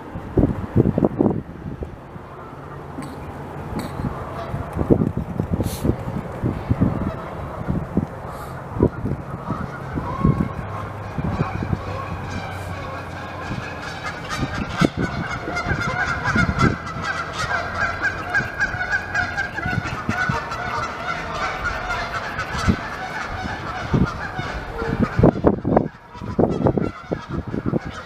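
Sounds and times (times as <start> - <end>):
chorus of animal calls: 6.8 - 28.0
beavers gnawing wood: 10.6 - 23.4.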